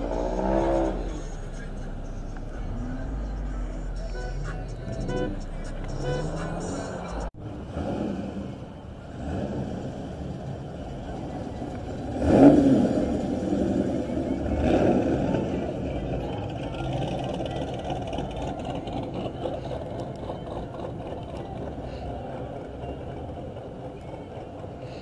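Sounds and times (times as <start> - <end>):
car engine revving hard: 0.0 - 1.2, 6.3 - 10.4, 12.1 - 15.6
cars rolling past: 0.0 - 25.0.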